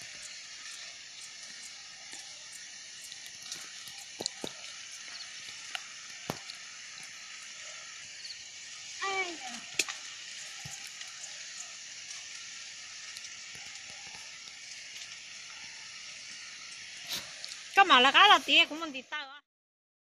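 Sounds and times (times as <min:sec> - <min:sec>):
steady high hiss: 0:00.0 - 0:19.4
sharp clicks and snaps: 0:09.8 - 0:10.0.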